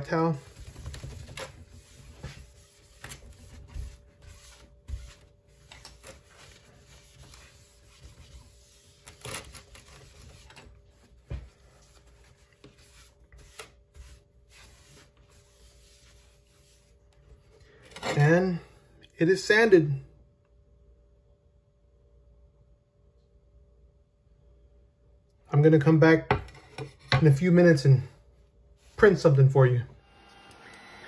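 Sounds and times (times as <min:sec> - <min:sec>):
paper towel rubbing on glass: 0:00.0 - 0:17.0
faint steady hum: 0:00.0 - 0:31.0.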